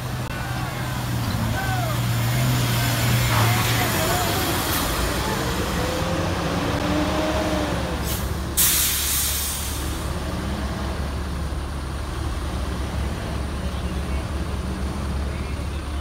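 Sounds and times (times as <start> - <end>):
bus diesel engine rumbling: 0.0 - 16.0
air brakes hissing: 8.0 - 10.0.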